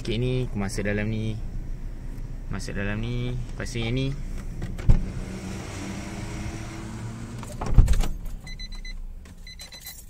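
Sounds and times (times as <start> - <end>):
steady low hum: 0.0 - 7.4.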